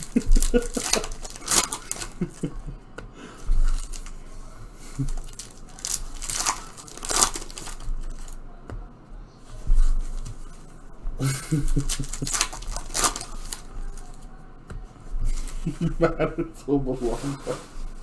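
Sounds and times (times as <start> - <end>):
card packs being torn open: 0.0 - 2.5, 3.7 - 4.2, 5.0 - 8.4, 11.5 - 14.2
wrapper crinkling: 0.0 - 2.6, 3.5 - 4.2, 4.8 - 8.4, 11.4 - 14.3.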